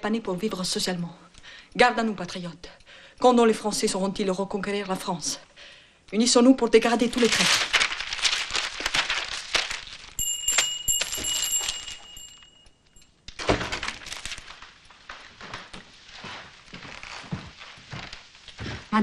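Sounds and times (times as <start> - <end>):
newspaper pages rustling: 6.8 - 12.4, 13.4 - 19.0
bell ringing: 10.2 - 13.1
soft shuffling: 14.0 - 19.0.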